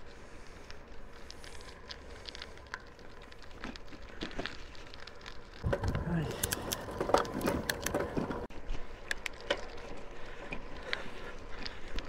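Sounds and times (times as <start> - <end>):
bicycle clicks and crackles: 0.0 - 12.0
faint steady rumble: 0.0 - 12.0.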